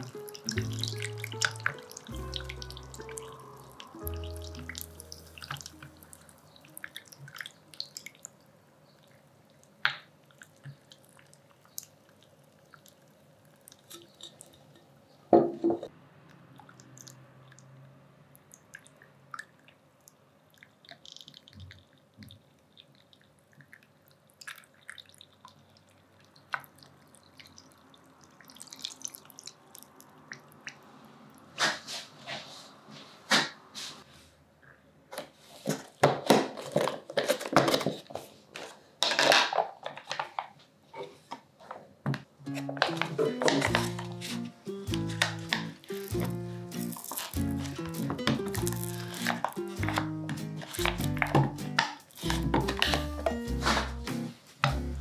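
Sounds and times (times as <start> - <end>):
soft music notes: 0.0 - 6.9, 42.4 - 55.0
ice cubes ticking in metal bowl: 0.0 - 8.2.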